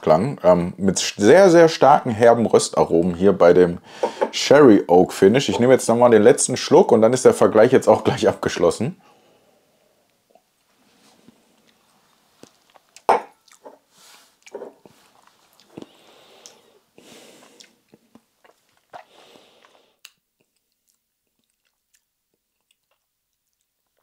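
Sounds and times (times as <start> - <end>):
tongue clicks: 20.0 - 23.0.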